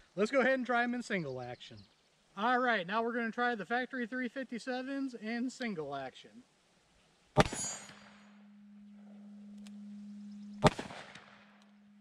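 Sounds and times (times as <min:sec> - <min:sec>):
revolver gunshots: 0:07.4 - 0:08.4, 0:10.6 - 0:11.6.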